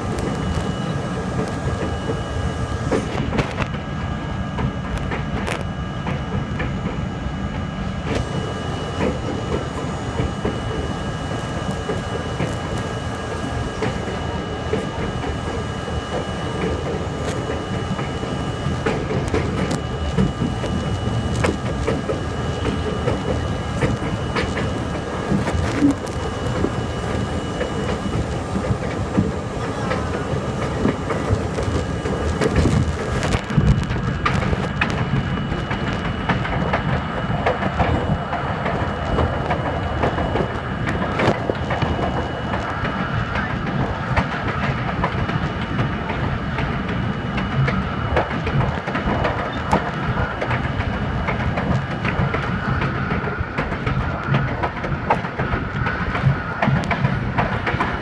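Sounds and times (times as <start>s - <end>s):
wheels rumbling on rail: 0.0s - 58.0s
clacks over rail joints: 18.8s - 58.0s.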